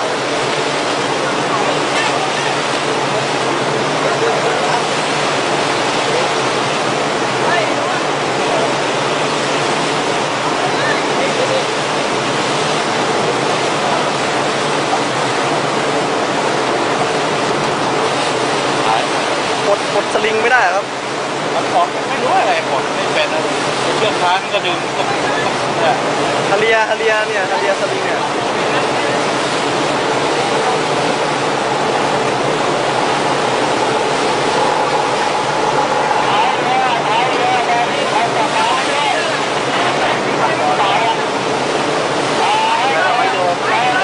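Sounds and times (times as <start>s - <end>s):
churning sea water rushing: 0.0s - 44.0s.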